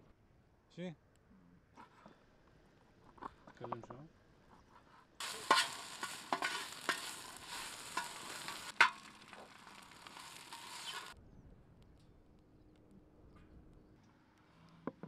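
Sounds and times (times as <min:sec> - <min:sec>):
meat sizzling in a pan: 0:05.2 - 0:11.2
metal spatula scraping a pan: 0:05.2 - 0:11.2.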